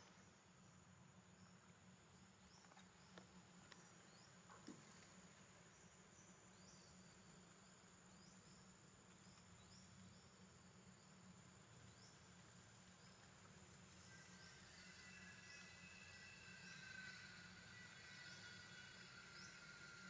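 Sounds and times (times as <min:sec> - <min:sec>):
high-pitched insect drone: 0:12.8 - 0:20.0.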